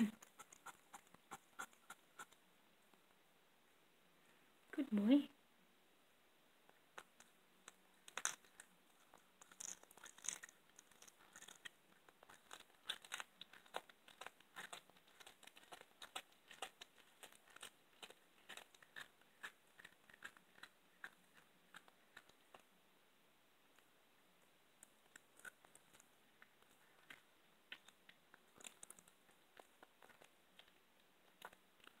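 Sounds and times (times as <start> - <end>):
cat crunching bone: 6.9 - 22.7, 24.8 - 32.0.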